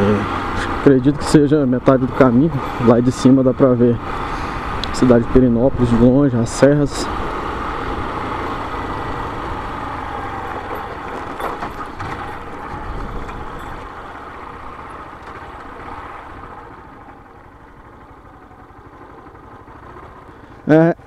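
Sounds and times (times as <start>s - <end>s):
motorcycle engine: 0.0s - 21.0s
tyres on gravel: 6.7s - 20.3s
wind noise: 10.5s - 14.0s.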